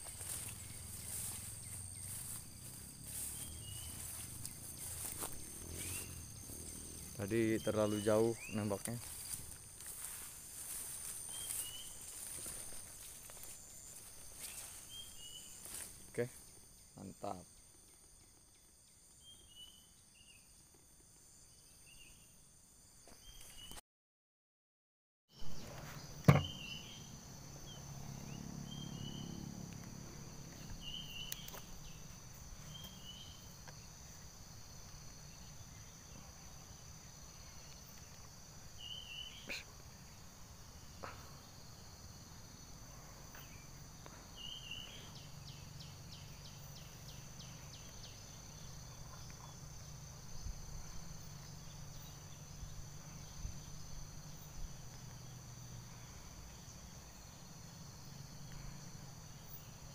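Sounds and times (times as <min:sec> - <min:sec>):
high-pitched insect song: 0:00.0 - 0:23.8, 0:25.4 - 0:59.9
short chirping calls: 0:30.6 - 0:32.1.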